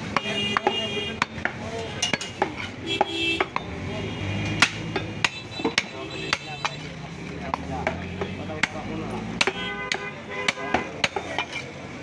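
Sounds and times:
cleaver chopping on wooden block: 0:07.5 - 0:11.6.

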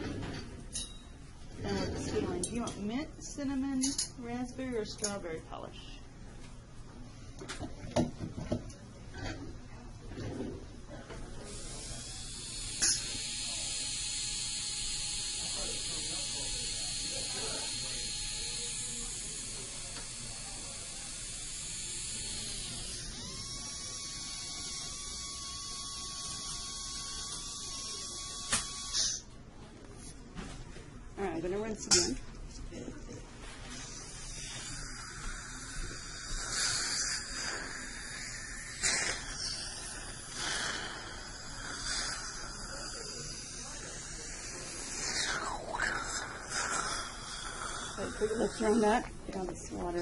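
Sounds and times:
dental handpiece whining: 0:11.5 - 0:29.3, 0:33.7 - 0:49.0
dental water spray and suction: 0:34.5 - 0:48.6.

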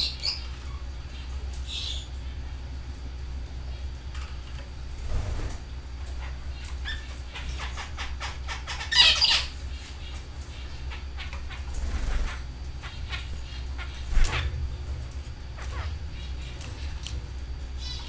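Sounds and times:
canaries chirping: 0:00.0 - 0:02.2, 0:06.1 - 0:14.6, 0:15.5 - 0:17.1, 0:17.8 - 0:18.0
steady low hum: 0:00.0 - 0:18.0.

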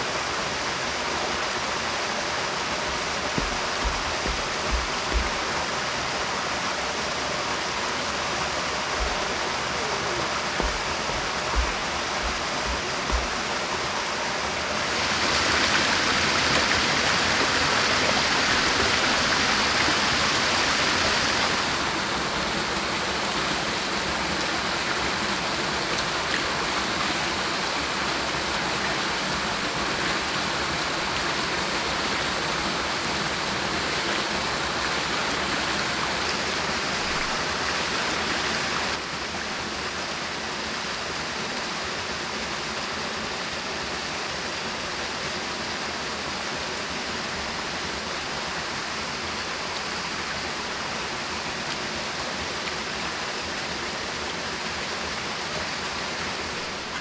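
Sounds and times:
stream flowing: 0:00.0 - 0:57.0
soil clods thumping: 0:02.8 - 0:05.7, 0:08.9 - 0:09.6, 0:10.4 - 0:13.7.

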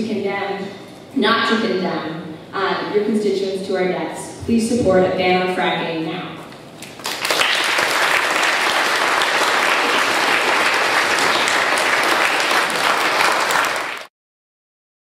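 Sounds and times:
audience applauding: 0:06.8 - 0:14.1.

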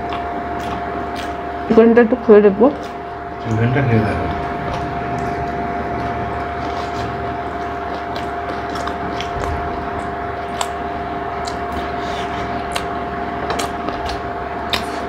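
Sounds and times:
mechanical room hum: 0:00.0 - 0:15.0
people eating with fingers: 0:00.0 - 0:15.0.

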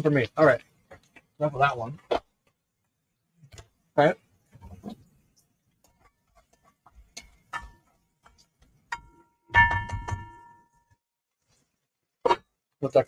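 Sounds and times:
spatula stirring vegetables in pot: 0:00.1 - 0:12.8
utensil knocked against metal pot: 0:07.2 - 0:10.4.

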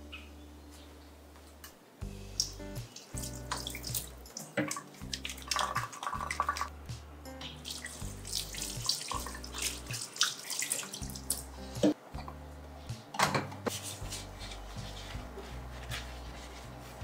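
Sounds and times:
background music with bass: 0:00.0 - 0:10.0, 0:10.9 - 0:17.0
hands washing under water: 0:02.4 - 0:06.7, 0:07.6 - 0:11.9
tap water splashing into steel sink: 0:02.4 - 0:06.7.

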